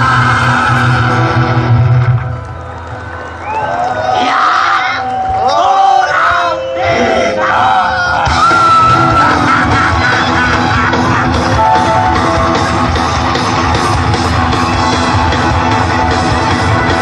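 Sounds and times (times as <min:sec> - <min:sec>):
rock band playing: 0:00.0 - 0:02.8, 0:08.1 - 0:17.0
electric guitar: 0:00.0 - 0:03.0, 0:08.2 - 0:17.0
drums: 0:00.0 - 0:03.6, 0:08.0 - 0:17.0.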